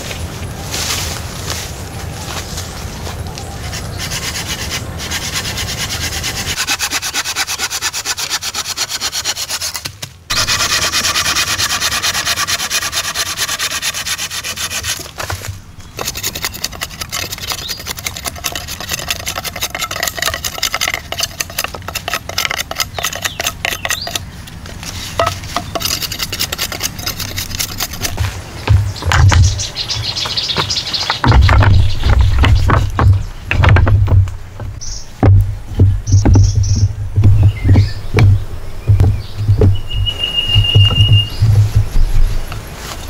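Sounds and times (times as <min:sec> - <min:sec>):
hand saw cutting wood: 0:03.7 - 0:24.2, 0:25.2 - 0:28.3.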